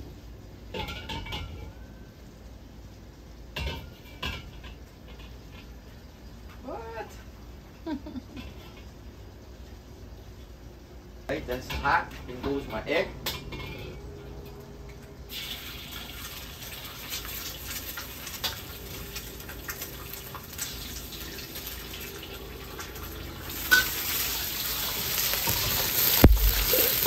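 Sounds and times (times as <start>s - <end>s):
egg sizzling in hot oil: 15.3s - 27.0s.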